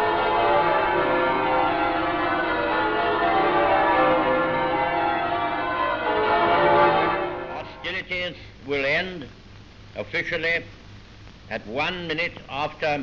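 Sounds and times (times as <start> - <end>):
church bells pealing: 0.0 - 8.0.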